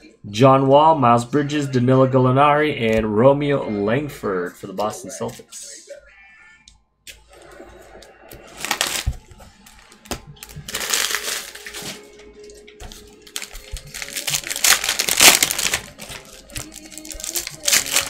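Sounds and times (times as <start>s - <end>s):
wrapper crackling and tearing: 8.6s - 12.2s, 13.2s - 18.0s.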